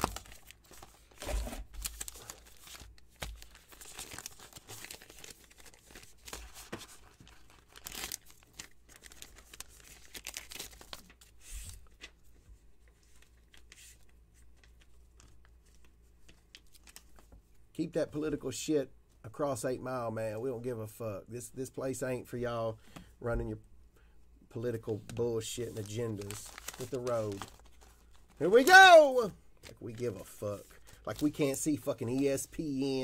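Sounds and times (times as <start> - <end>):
paper envelope tearing and crinkling: 0.0 - 11.9, 25.6 - 33.0.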